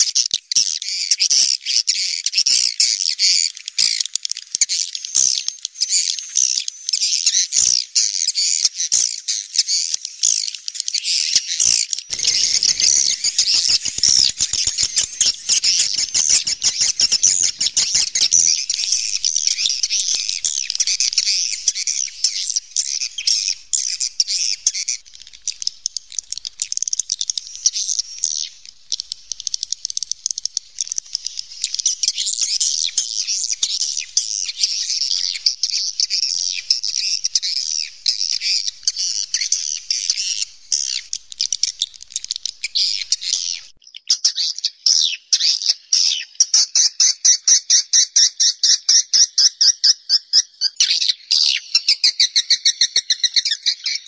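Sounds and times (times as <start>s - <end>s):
swiftlets twittering: 12.1s - 41.3s
fast rattling clicks: 12.1s - 42.8s.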